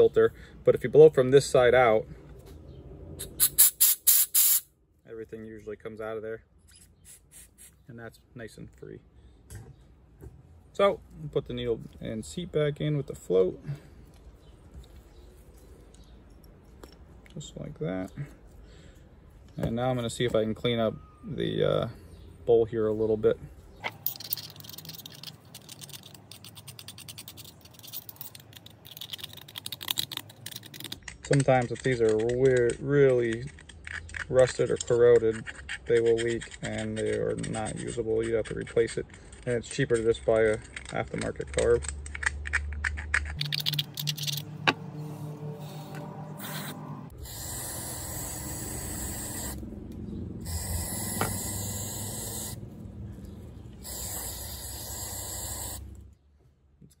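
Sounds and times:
aerosol spray hissing: 45.6 - 49.6, 50.4 - 52.6, 53.8 - 55.9.

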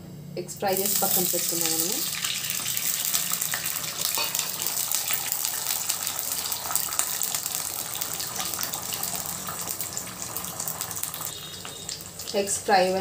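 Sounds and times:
eggs sizzling in hot oil: 0.6 - 13.0.

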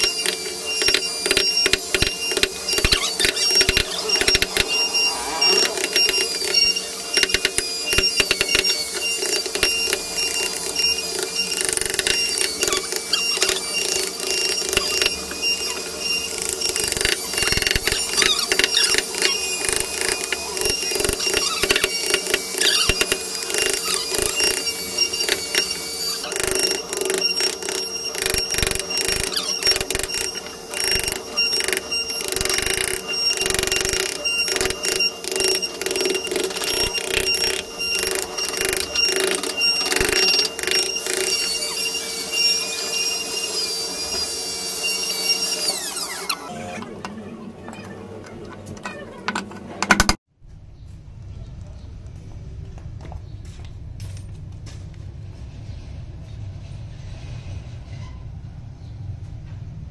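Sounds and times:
steady high tone: 0.0 - 46.3.

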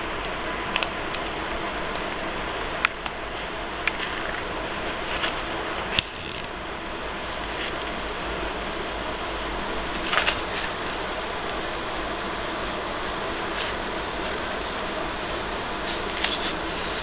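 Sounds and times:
steady hiss: 0.0 - 17.0
album pages turning: 3.8 - 6.6, 9.9 - 11.6, 15.8 - 17.0.

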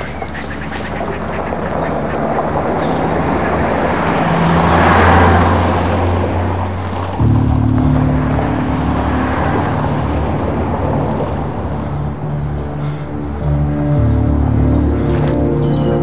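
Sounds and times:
steady engine hum: 0.0 - 16.0
car driving past: 3.0 - 15.5.

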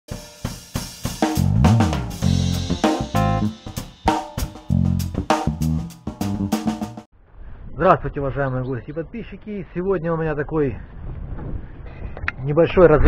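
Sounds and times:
drum kit beat: 0.1 - 7.1
bending pitch glide: 1.4 - 3.7
low bass line: 1.4 - 3.8, 4.5 - 7.0.

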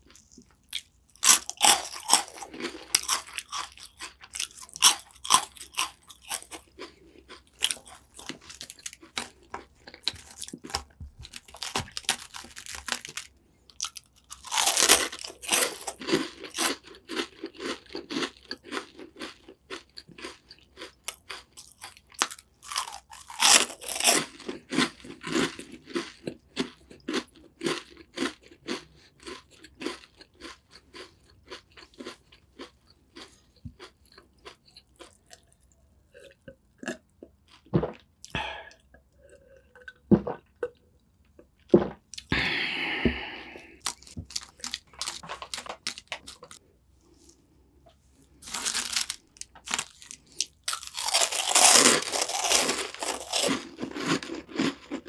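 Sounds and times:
person crunching cookies: 0.0 - 55.0
person swallowing water: 41.8 - 43.8.

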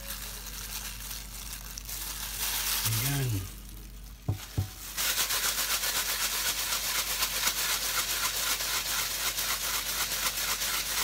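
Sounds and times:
seeds rattling against glass bowl: 0.0 - 11.0.

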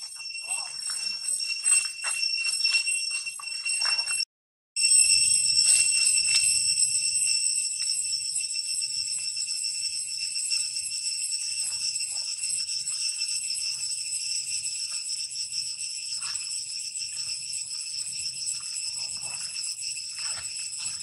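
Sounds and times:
shrill insect chorus: 5.0 - 21.0.

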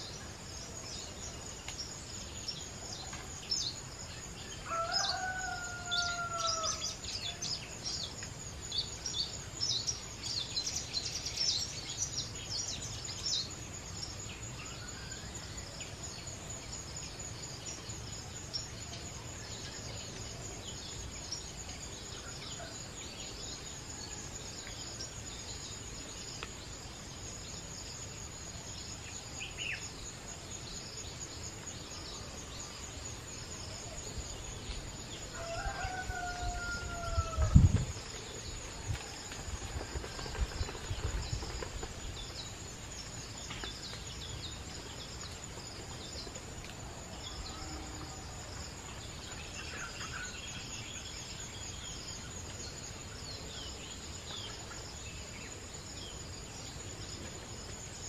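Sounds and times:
high insect whine: 0.0 - 58.0
rooster crowing: 4.6 - 7.0, 35.3 - 37.7.

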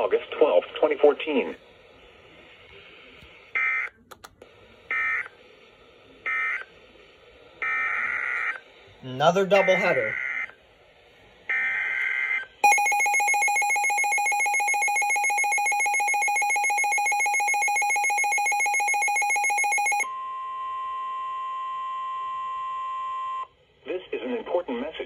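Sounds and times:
pulsing electronic alarm tone: 11.6 - 20.1
alert data header screech: 12.6 - 20.1
steady warning tone: 12.6 - 20.1.

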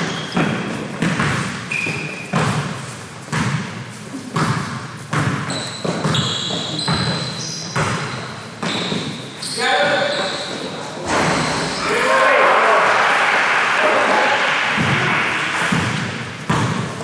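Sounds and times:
basketball bouncing on gym floor: 0.0 - 11.8, 14.8 - 17.0
short high squeaks: 5.5 - 15.7.

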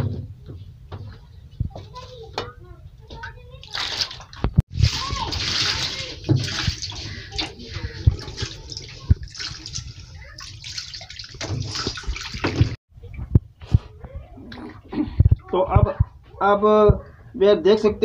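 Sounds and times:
water sloshing and pouring: 3.5 - 12.8.

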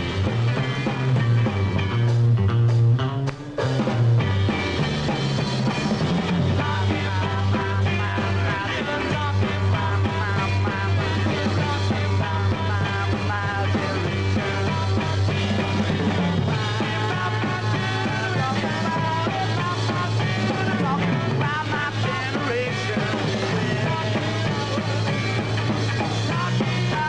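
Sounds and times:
rock band playing: 0.0 - 27.0
male lead vocal singing: 6.6 - 27.0.

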